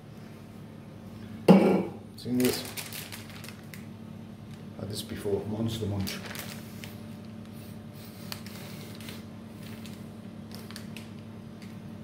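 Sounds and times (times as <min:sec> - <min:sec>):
steady low hum: 0:00.0 - 0:12.0
crisp packet crinkling: 0:02.2 - 0:03.9, 0:05.8 - 0:07.3, 0:08.2 - 0:11.8.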